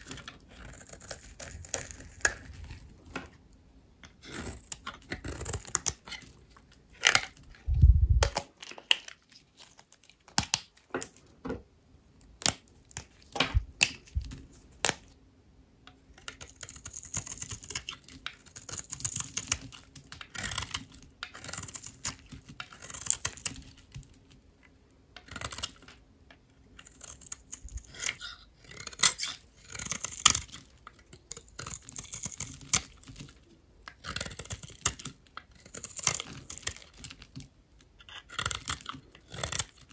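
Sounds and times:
knife cracking through soap: 0:00.0 - 0:03.2, 0:04.0 - 0:07.5, 0:16.2 - 0:24.3, 0:25.1 - 0:39.9
knife slicing scraping crumble: 0:00.0 - 0:03.4, 0:26.8 - 0:37.2.

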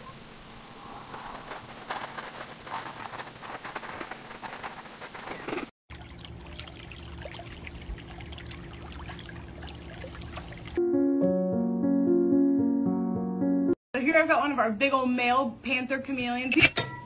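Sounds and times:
cat scratching in litter: 0:01.1 - 0:05.7.

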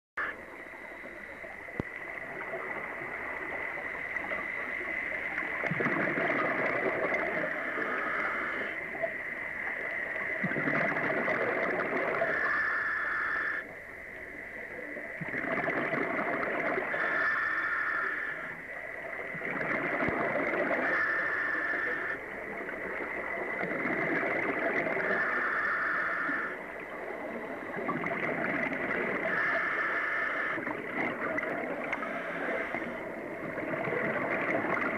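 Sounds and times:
steady high whine: 0:00.2 - 0:34.9
exhaled bubbles gushing: 0:05.3 - 0:07.9, 0:10.4 - 0:12.4, 0:15.2 - 0:17.0, 0:19.3 - 0:21.1, 0:22.5 - 0:25.4, 0:26.7 - 0:29.5, 0:30.5 - 0:34.9
scuba regulator breathing: 0:07.5 - 0:08.8, 0:31.8 - 0:33.2.

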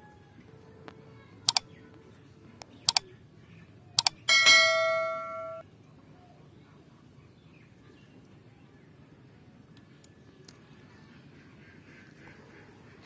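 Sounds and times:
mouse clicks: 0:02.6 - 0:03.0, 0:04.0 - 0:04.2
loud bell ding: 0:04.3 - 0:05.6.

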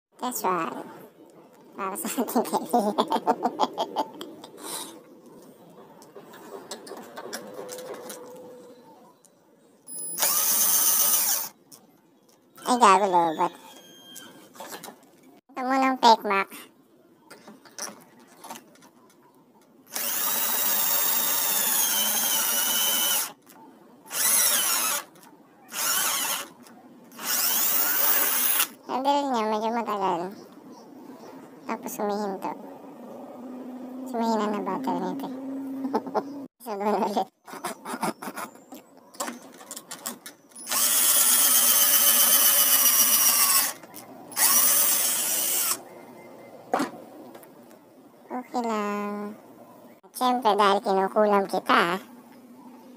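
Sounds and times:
cordless drill motor whine: 0:10.1 - 0:11.5, 0:19.9 - 0:23.3, 0:24.1 - 0:25.1, 0:25.7 - 0:26.5, 0:27.2 - 0:28.7, 0:40.6 - 0:43.8, 0:44.4 - 0:45.8.

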